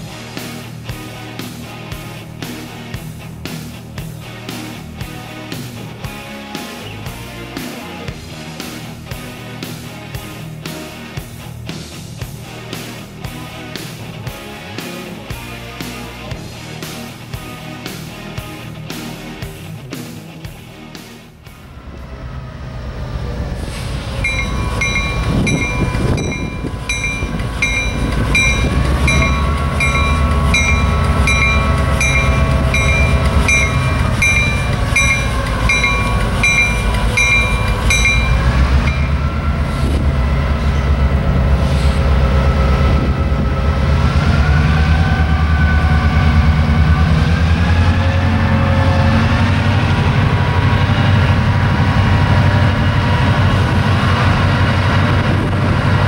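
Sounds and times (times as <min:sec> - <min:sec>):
diesel locomotive engine rumble: 0:21.4 - 0:56.0
bell ringing: 0:24.2 - 0:39.4.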